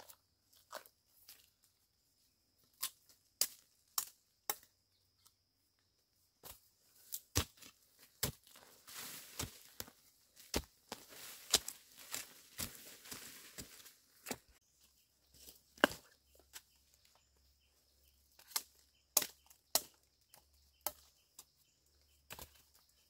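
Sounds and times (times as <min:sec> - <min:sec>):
machete chopping into soil: 0:02.8 - 0:04.7, 0:06.4 - 0:08.6, 0:15.8 - 0:16.6, 0:18.4 - 0:21.1
dry leaves rustling: 0:08.6 - 0:10.0, 0:10.6 - 0:14.0.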